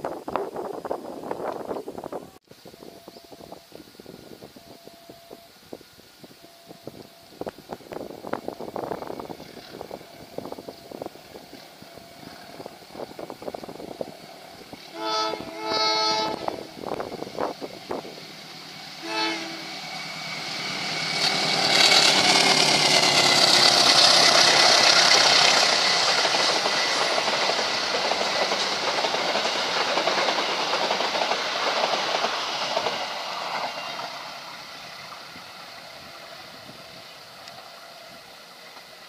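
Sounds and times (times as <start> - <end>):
train wheel and rail noise: 0.0 - 39.0
train horn blast: 14.8 - 17.0, 18.9 - 22.9.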